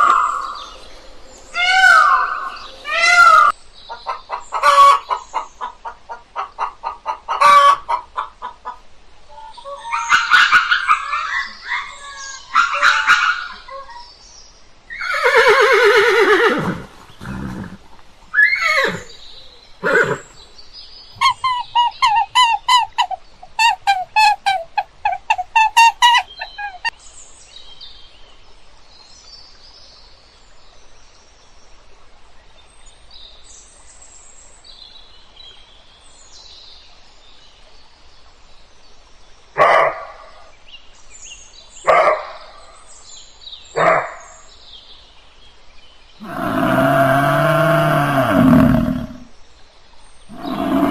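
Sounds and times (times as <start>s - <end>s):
horse whinnying: 15.0s - 17.8s, 18.4s - 19.2s, 19.8s - 20.3s, 46.2s - 49.2s, 50.3s - 50.9s
short animal calls: 50.3s - 50.9s.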